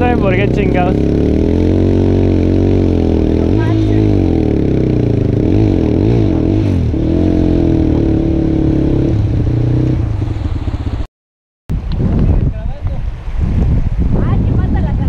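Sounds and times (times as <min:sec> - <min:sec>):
motorcycle engine revving: 0:00.0 - 0:11.1.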